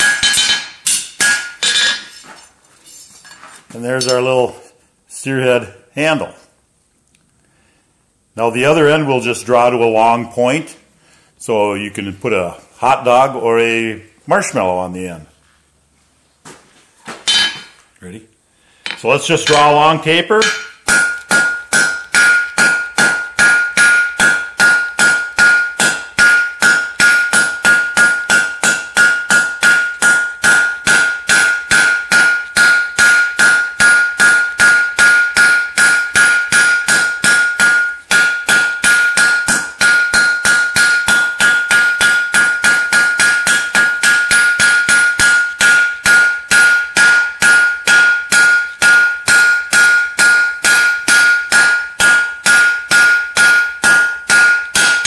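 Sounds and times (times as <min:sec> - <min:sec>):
ringing anvil tone: 0:00.0 - 0:02.3, 0:17.3 - 0:17.8, 0:18.9 - 0:55.0.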